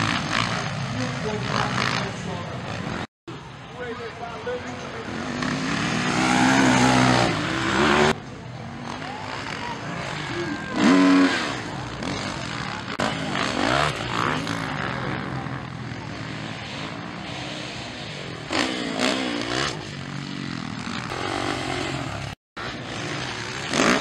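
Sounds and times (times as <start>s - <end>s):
dirt bike engines revving: 0.0s - 24.0s.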